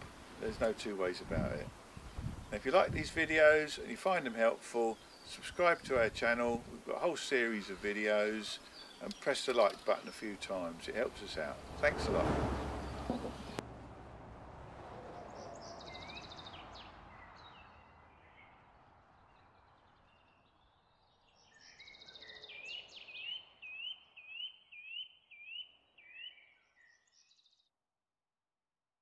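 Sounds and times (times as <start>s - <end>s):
outdoor background noise: 0.0s - 26.4s
bird chirping and trilling: 10.9s - 13.6s, 19.4s - 27.5s.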